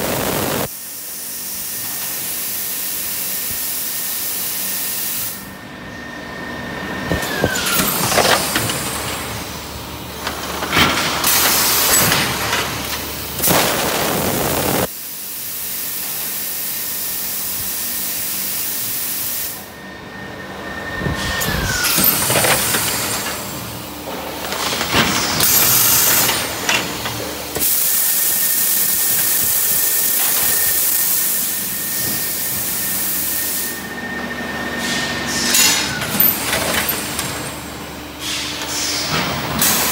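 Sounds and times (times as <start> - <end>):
machine parts clanking: 10.2 - 14.0, 35.5 - 37.6.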